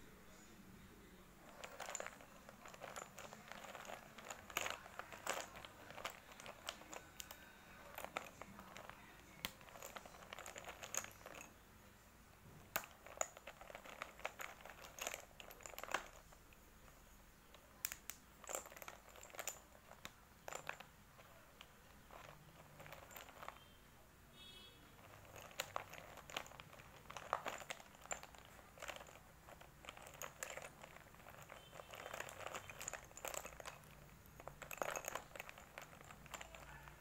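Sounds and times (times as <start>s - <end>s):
chalk sticks clattering: 1.4s - 11.6s, 24.9s - 37.0s.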